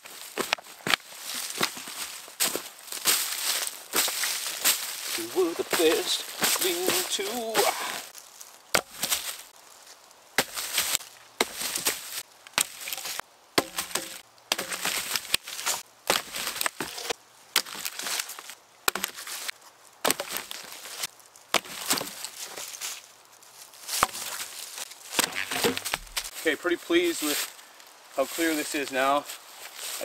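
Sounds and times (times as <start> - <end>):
rustling of leaf litter: 0.0 - 13.2, 14.7 - 30.0
wooden logs knocking: 8.7 - 9.2, 12.6 - 15.4, 20.0 - 20.6, 21.5 - 22.2, 24.0 - 24.4, 25.2 - 26.3.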